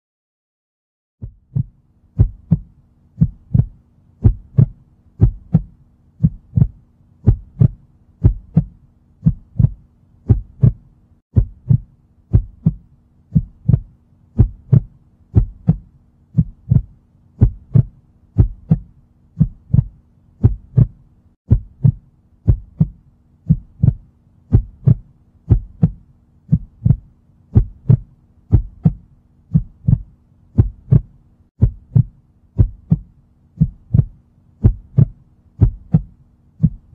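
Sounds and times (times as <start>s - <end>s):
faint low hum: 1.2s - 36.9s
heartbeat thumping: 1.2s - 36.9s.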